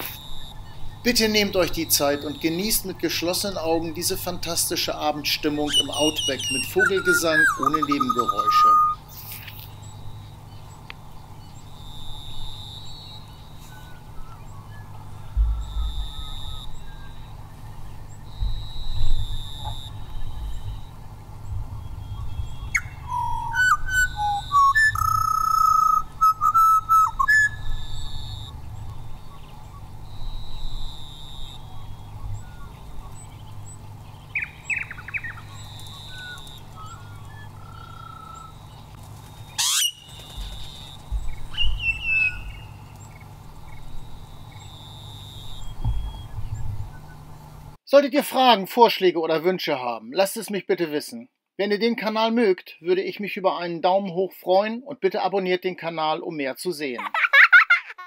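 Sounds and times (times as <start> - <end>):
birds singing: 0.0 - 47.8
low rumble: 14.0 - 25.2.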